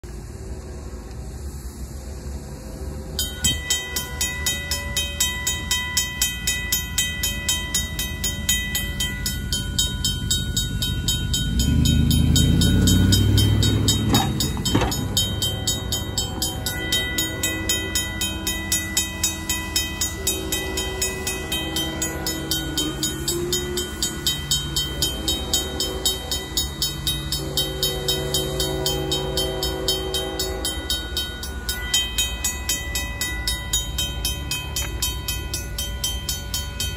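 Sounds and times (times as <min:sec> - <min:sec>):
mechanical crossing bell ringing: 0:03.2 - 0:36.9
vehicle passing: 0:10.0 - 0:18.3
locomotive horn blasts: 0:11.5 - 0:31.4.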